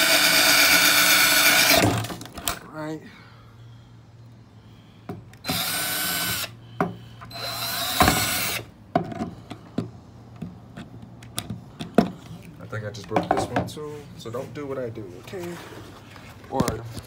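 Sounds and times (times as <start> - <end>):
cordless drill boring into wood: 0.0 - 2.1, 5.4 - 6.6, 7.3 - 8.7.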